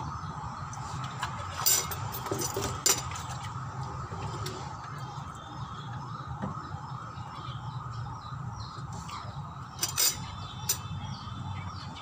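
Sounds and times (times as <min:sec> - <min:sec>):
small birds chirping: 0:04.3 - 0:12.0.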